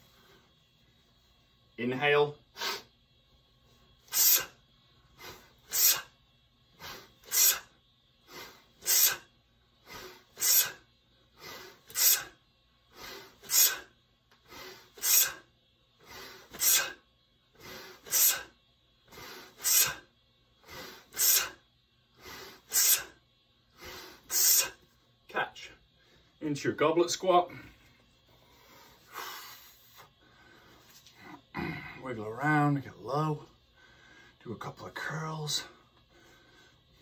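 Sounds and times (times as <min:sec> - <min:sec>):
sharp hissing breaths: 0:02.4 - 0:25.0, 0:27.5 - 0:32.1, 0:33.6 - 0:34.4
man breathing forcefully: 0:04.0 - 0:24.9, 0:27.5 - 0:32.0, 0:33.6 - 0:34.4, 0:35.8 - 0:37.0.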